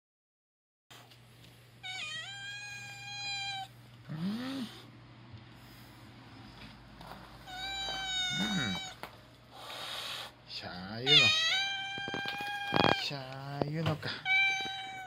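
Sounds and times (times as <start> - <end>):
cat meowing: 1.8 - 3.7, 7.4 - 9.1, 11.0 - 13.2, 14.1 - 15.0.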